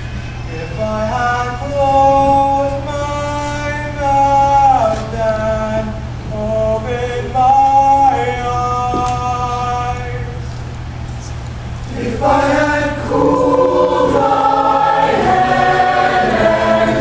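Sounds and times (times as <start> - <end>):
a cappella choir singing: 11.9 - 17.0.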